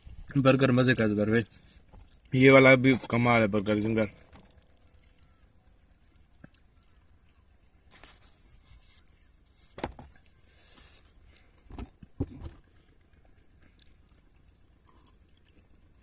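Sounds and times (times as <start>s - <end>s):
eating sounds: 4.4s - 7.5s, 11.2s - 16.0s.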